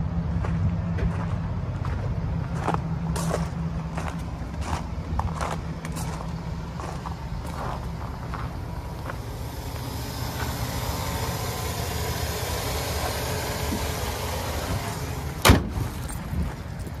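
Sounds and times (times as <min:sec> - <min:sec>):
truck engine idling: 0:00.0 - 0:17.0
car hood slamming shut: 0:15.4 - 0:15.8.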